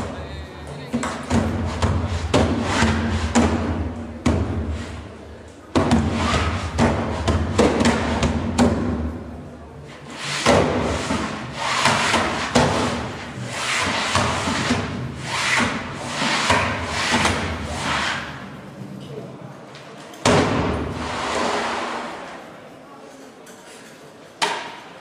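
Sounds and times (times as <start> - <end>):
rubbing and scraping: 1.1 - 3.6, 6.0 - 8.2, 9.9 - 18.6.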